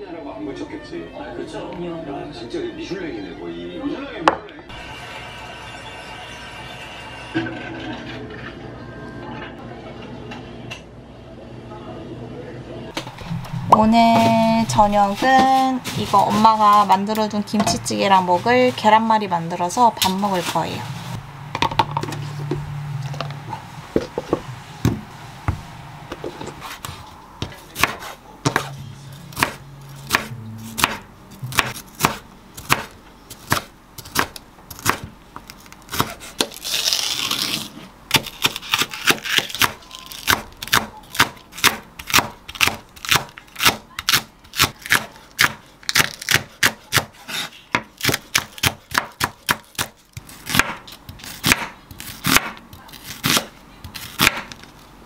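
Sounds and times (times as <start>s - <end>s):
knife chopping on wooden board: 27.4s - 28.7s, 29.3s - 35.1s, 38.1s - 52.6s, 53.2s - 54.6s.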